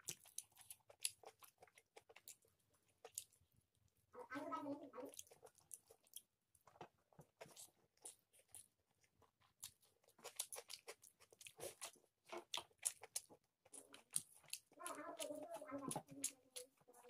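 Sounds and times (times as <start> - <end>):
chewing and crunching: 0.0 - 17.0.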